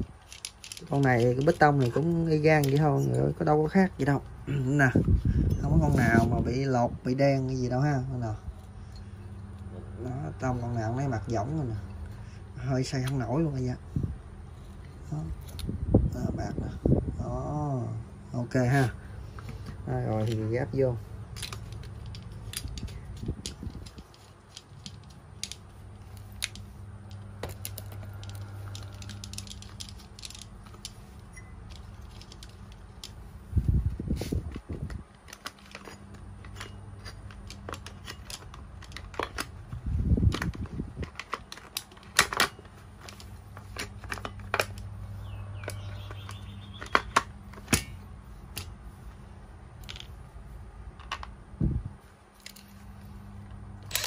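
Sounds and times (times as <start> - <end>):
low steady hum: 0.0 - 54.0
plastic and metal clicks: 21.3 - 33.2, 34.5 - 44.9.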